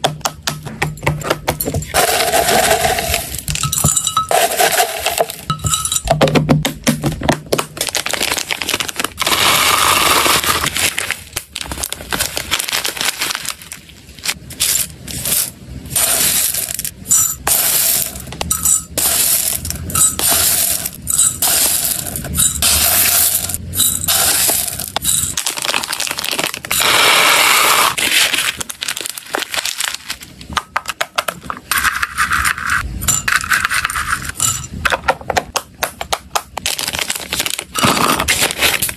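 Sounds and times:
scoop clinking: 1.6s - 6.2s.

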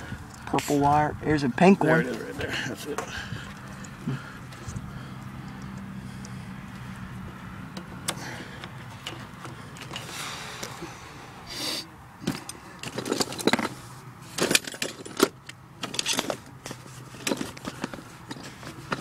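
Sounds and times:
metallic clicks and rattles: 12.2s - 19.0s.

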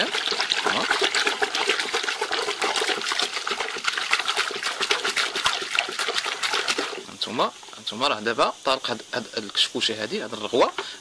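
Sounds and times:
water splashing in a bucket: 0.0s - 7.5s, 10.1s - 11.0s.

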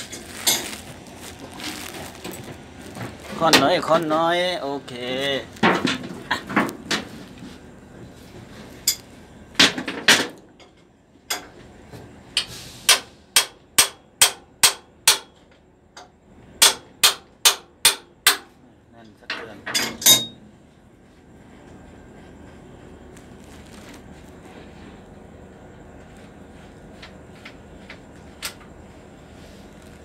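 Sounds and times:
hammer striking metal: 12.9s - 15.3s, 16.6s - 18.5s.

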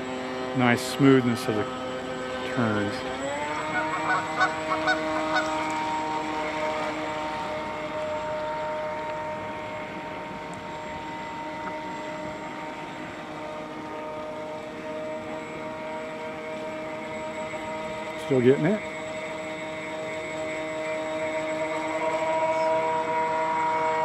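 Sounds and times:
electric motor whining: 0.0s - 24.0s
geese honking: 3.6s - 5.8s.

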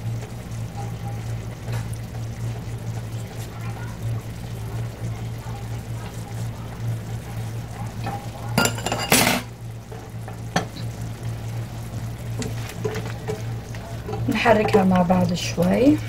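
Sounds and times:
metal utensils clattering: 8.6s - 9.5s.

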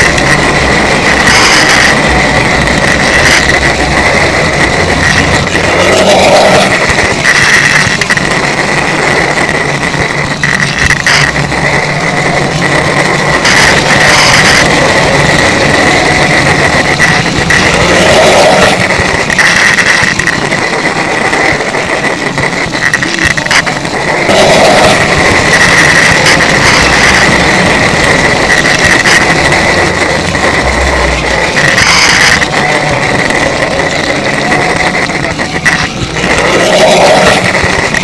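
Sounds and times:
electric motor high whine: 0.0s - 38.0s
wheels rumbling on track: 0.0s - 38.0s.

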